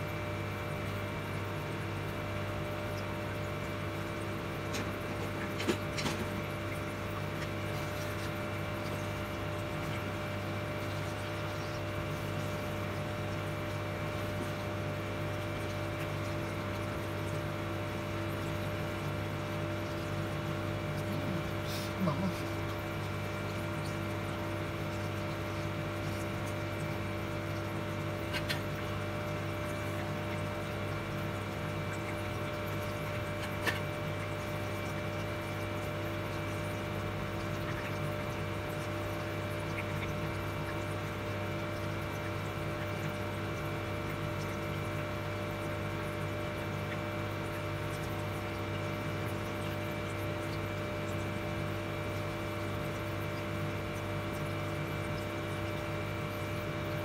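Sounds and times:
induction cooktop humming and whining: 0:00.0 - 0:57.0
soft sizzle of frying in oil: 0:28.9 - 0:57.0.

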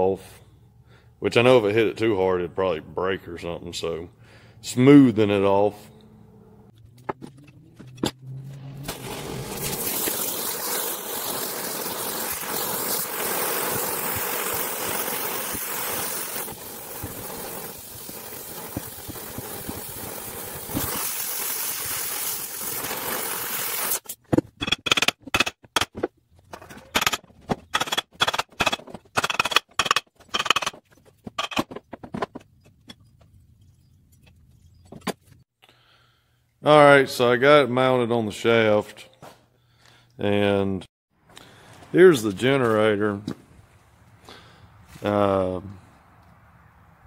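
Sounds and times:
cutting torch hissing: 0:08.8 - 0:24.0.

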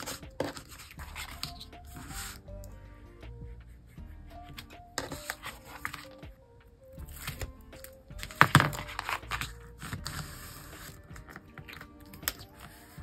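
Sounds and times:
paper crinkle: 0:00.0 - 0:02.4, 0:04.5 - 0:06.3, 0:07.1 - 0:13.0
paper rustling and tapping: 0:00.0 - 0:02.4, 0:04.5 - 0:06.4, 0:07.2 - 0:13.0
quiet background music: 0:00.0 - 0:13.0.

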